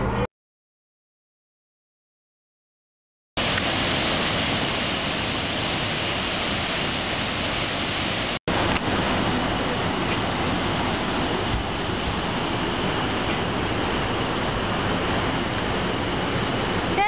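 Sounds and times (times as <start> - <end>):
waterfall roaring over rocks: 3.4 - 17.0.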